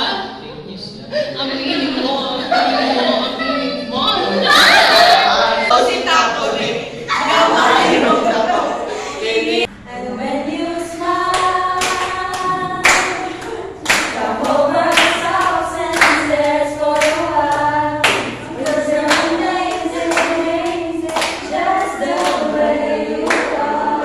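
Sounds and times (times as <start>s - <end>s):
women singing together: 1.3s - 24.0s
hands clapping in time: 11.4s - 15.2s, 16.9s - 21.4s.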